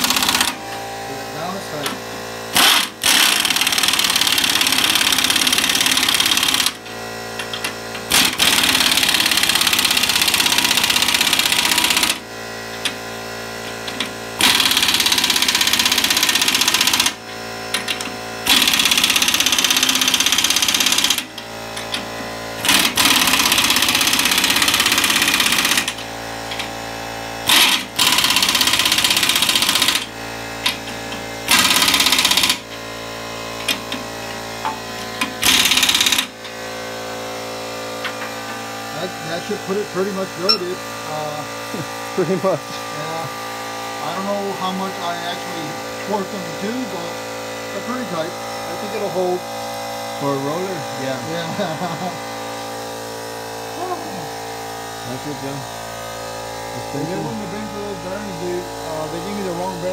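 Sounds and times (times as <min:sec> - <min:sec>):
impact wrench hammering: 0:00.0 - 0:00.9, 0:01.8 - 0:37.0, 0:37.8 - 0:38.8.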